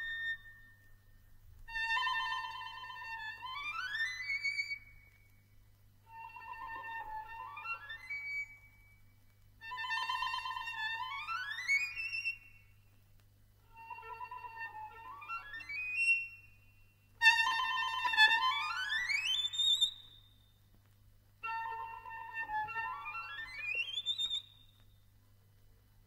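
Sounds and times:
solo violin playing: 13.7 - 16.4, 17.2 - 19.3, 21.4 - 23.9.

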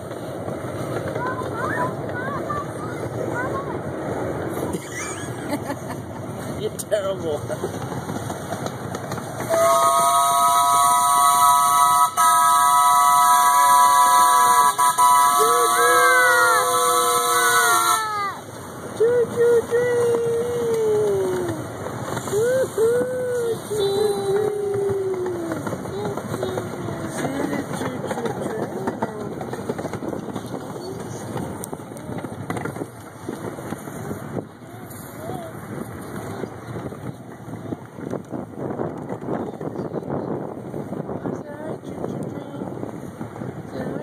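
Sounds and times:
miniature train rattling on track: 0.0 - 44.0
voices: 0.9 - 44.0
steam locomotive whistle: 9.4 - 18.2.

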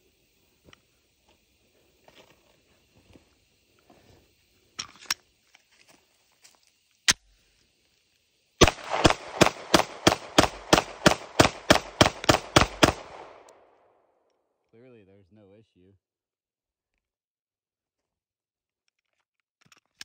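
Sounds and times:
pistol shots: 8.6 - 13.8
sharp clicks: 8.6 - 13.8.

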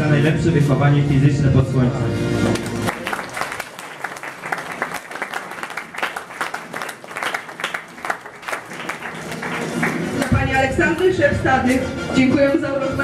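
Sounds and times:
audience applause: 2.4 - 10.4
person clapping close by: 2.5 - 10.3.

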